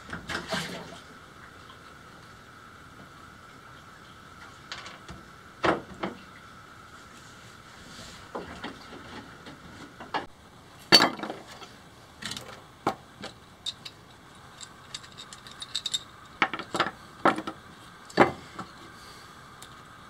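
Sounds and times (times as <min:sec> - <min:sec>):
metal parts knocking and clinking: 0:13.2 - 0:17.5.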